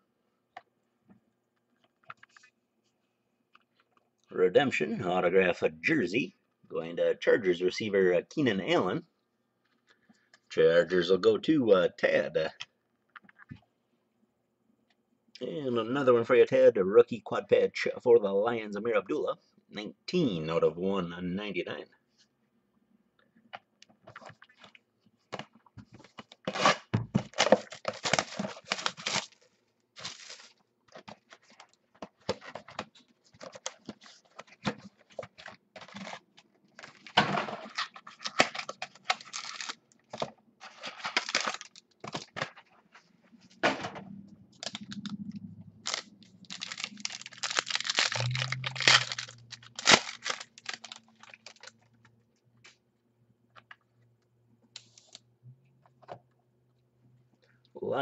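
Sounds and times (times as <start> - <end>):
cards and wrappers rustling: 24.0 - 43.4, 44.5 - 51.9.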